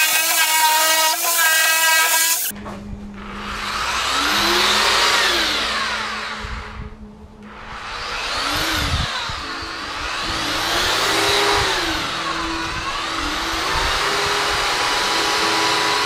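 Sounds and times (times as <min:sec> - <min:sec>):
electric power sander running: 0:03.2 - 0:16.0.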